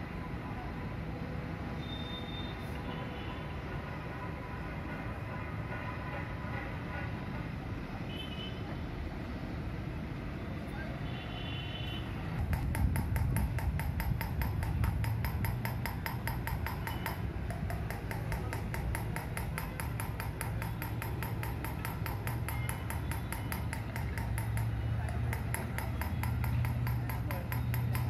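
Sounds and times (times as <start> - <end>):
rapid metallic knocks: 12.4 - 28.0.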